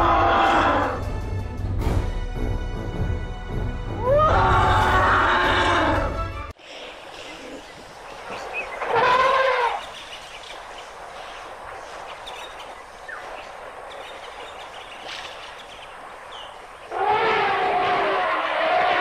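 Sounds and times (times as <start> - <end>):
faint bird chirps: 6.6 - 16.9
elephant calling: 7.1 - 10.2.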